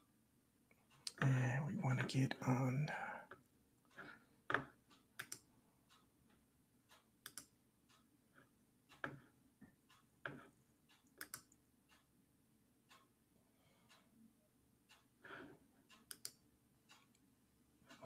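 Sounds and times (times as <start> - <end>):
computer keyboard clicks: 5.2 - 5.4, 7.2 - 7.5, 11.2 - 11.6, 16.1 - 16.4.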